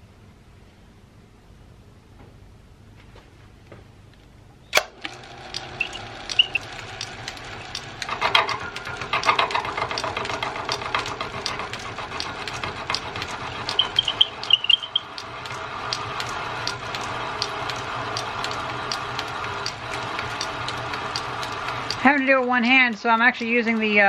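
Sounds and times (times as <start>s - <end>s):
metal lathe running: 4.9s - 24.0s
regular ticking: 5.1s - 24.0s.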